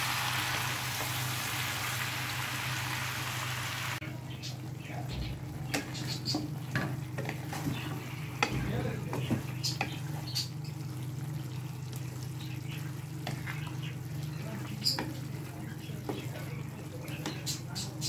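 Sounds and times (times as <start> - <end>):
soft sizzle: 0.0 - 18.0
spatula scraping a pan: 12.7 - 17.6.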